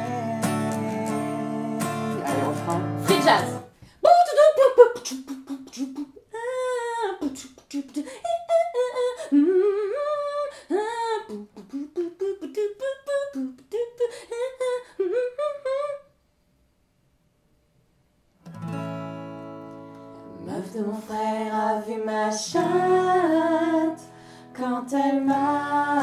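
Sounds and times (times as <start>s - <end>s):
acoustic guitar chord strummed: 0.0s - 3.8s, 18.4s - 26.0s
woman vocalizing scat syllables: 2.2s - 8.8s, 11.3s - 14.0s.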